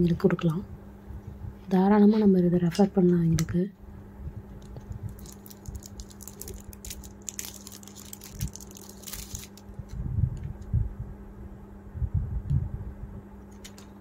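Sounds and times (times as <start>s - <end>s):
steady low hum: 0.0s - 14.0s
plastic wrapper crinkling: 4.6s - 10.0s.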